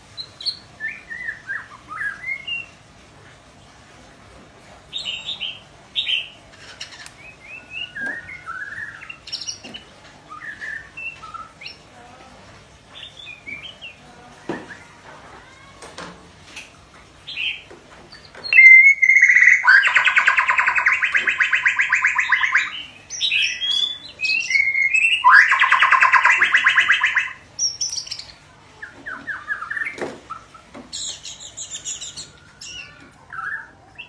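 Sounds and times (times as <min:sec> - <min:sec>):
bird whistles and chirps: 0:18.4 - 0:28.3.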